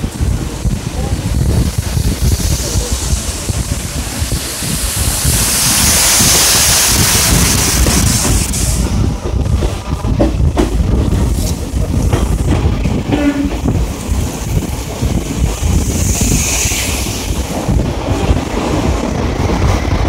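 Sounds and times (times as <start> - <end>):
sharp clicks from train wheels: 0.0 - 20.0
train wheels rumbling on track: 0.0 - 20.0
wind buffeting microphone: 0.0 - 20.0
waterfall rushing: 3.0 - 8.2.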